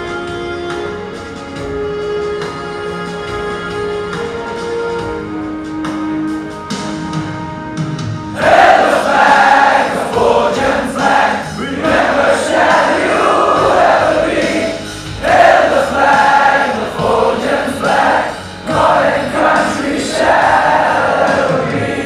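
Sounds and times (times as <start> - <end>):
instrumental backing: 0.0 - 22.0
choir singing: 8.3 - 22.0.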